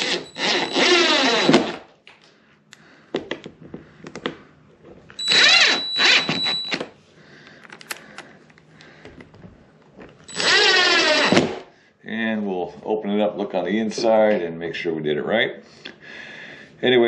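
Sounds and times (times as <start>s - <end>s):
cordless drill driving screws: 0.0s - 1.8s, 5.2s - 6.8s, 10.3s - 11.6s.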